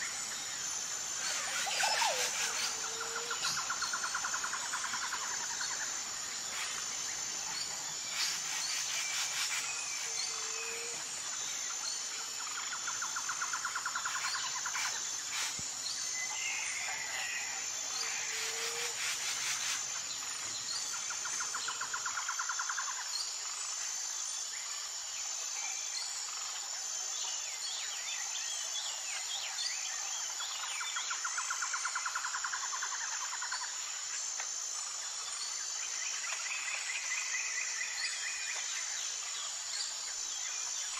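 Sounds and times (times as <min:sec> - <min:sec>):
high-pitched insect drone: 0:00.0 - 0:40.9
rapid insect trilling: 0:00.0 - 0:40.9.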